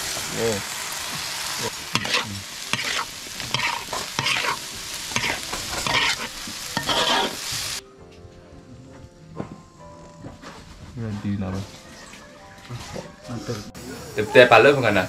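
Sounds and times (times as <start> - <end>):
food sizzling in a wok: 0.0 - 7.8, 12.8 - 15.0
metal spatula scraping pan: 2.0 - 7.5.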